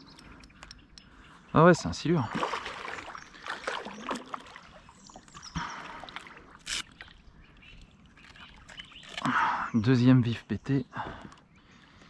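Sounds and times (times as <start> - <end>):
water splashing and swirling: 2.1 - 9.2
short sharp splashes or knocks: 2.3 - 4.6.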